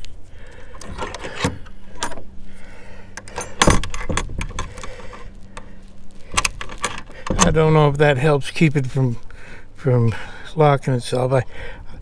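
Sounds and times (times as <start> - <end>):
metal latch rattling and clicking: 0.7 - 2.3, 3.2 - 5.3, 6.3 - 7.6.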